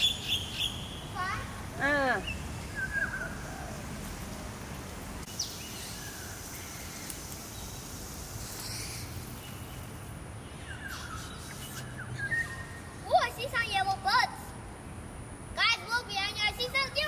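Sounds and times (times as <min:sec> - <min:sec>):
water spraying from hose nozzle: 0:05.3 - 0:10.2, 0:10.9 - 0:12.0
faint bird chirps: 0:08.4 - 0:13.0.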